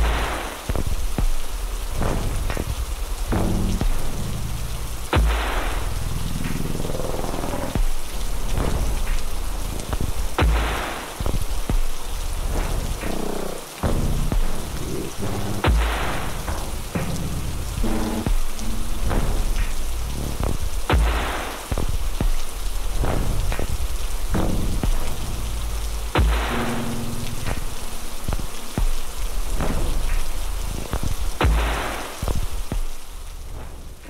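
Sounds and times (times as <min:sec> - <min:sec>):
dark sustained music: 0:00.0 - 0:34.0
rain-like hiss: 0:00.0 - 0:34.0
heavy hits: 0:23.1 - 0:29.0.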